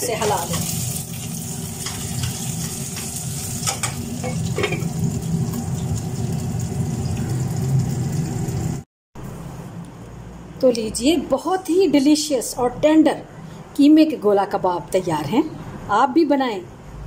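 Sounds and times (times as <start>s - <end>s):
meat sizzling in a pan: 0.1s - 8.8s.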